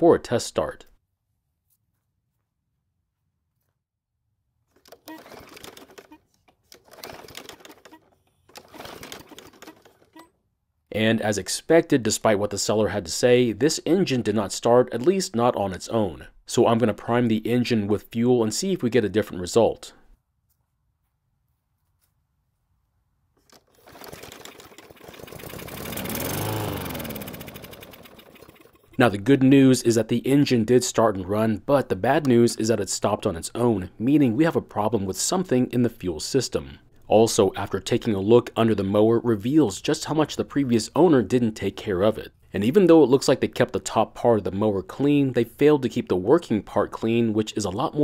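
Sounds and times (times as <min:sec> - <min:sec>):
mower engine recoil cranking: 0:04.8 - 0:10.3, 0:23.4 - 0:29.0.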